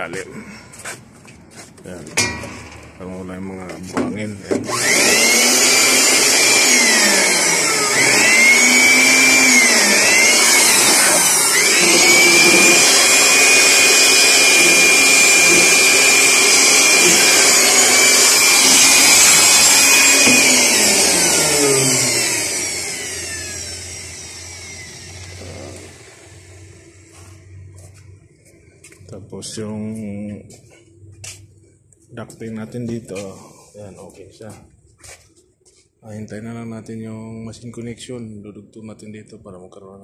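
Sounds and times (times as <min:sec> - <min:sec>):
high-speed electric motor whining: 0:04.5 - 0:27.9.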